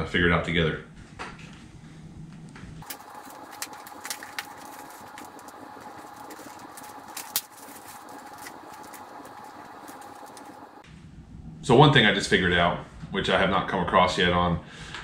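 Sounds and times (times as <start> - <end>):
steady background hum: 0.8 - 14.7
handling rustle: 2.8 - 10.8.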